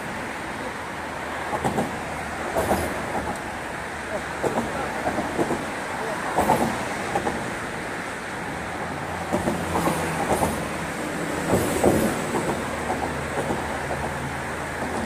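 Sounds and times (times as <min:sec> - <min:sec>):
traffic rumbling on a bridge: 0:00.0 - 0:15.0.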